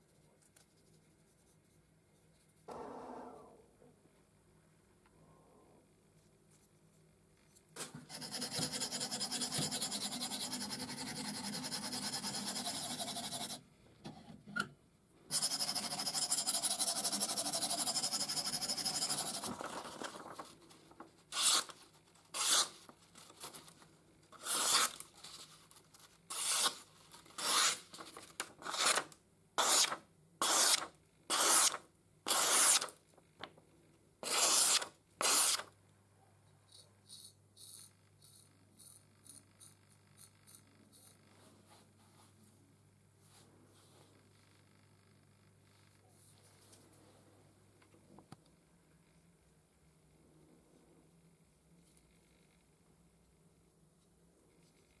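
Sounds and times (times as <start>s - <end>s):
knife slicing paper: 21.3s - 22.8s, 24.4s - 25.0s, 26.3s - 32.9s, 34.2s - 35.7s
knife blade being sharpened: 21.4s - 21.7s, 22.4s - 22.7s, 26.3s - 26.8s, 34.2s - 35.6s.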